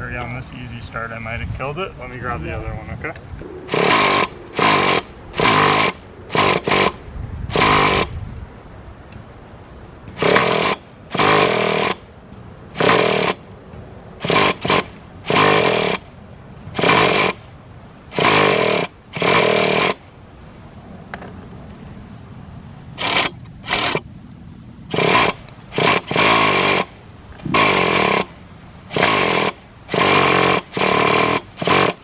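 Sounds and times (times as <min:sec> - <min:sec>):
electric starter spinning engine: 0:03.7 - 0:08.1, 0:10.2 - 0:12.0, 0:12.7 - 0:13.4, 0:14.2 - 0:16.1, 0:16.7 - 0:17.4, 0:18.1 - 0:20.0, 0:23.0 - 0:24.0, 0:24.9 - 0:32.0.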